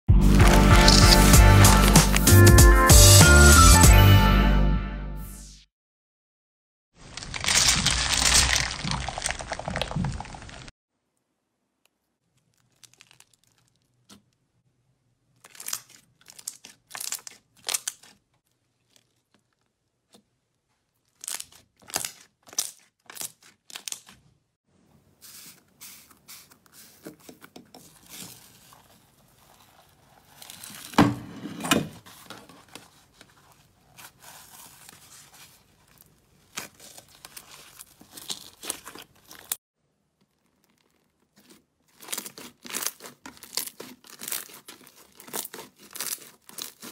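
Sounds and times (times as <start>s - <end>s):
slime crackling and popping: 0.3s - 2.4s, 7.0s - 10.7s, 12.3s - 14.3s, 15.3s - 18.2s, 21.1s - 24.2s, 27.9s - 31.0s, 33.9s - 39.6s, 40.2s - 46.9s.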